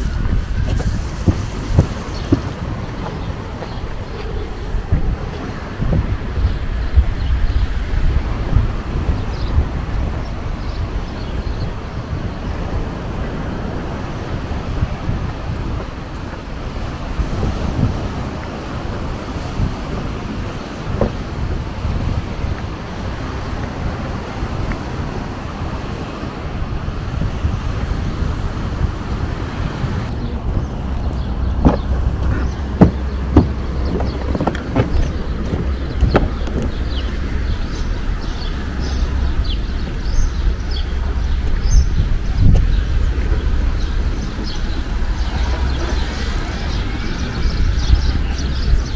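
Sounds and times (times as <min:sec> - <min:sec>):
low wind rumble: 0:00.0 - 0:48.9
wind on microphone: 0:00.0 - 0:48.9
sharp knocks: 0:31.6 - 0:36.8.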